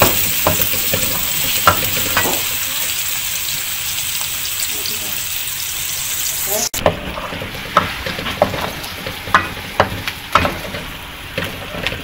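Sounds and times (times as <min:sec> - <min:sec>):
onions sizzling in hot oil: 0:00.0 - 0:12.0
wooden spoon scraping a pan: 0:06.8 - 0:12.0.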